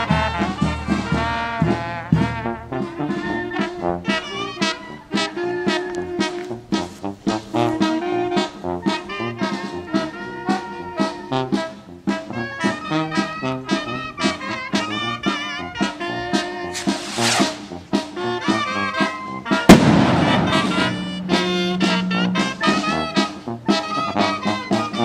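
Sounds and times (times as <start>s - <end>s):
brass band playing: 0.0s - 25.0s
firework bang: 19.7s - 21.7s.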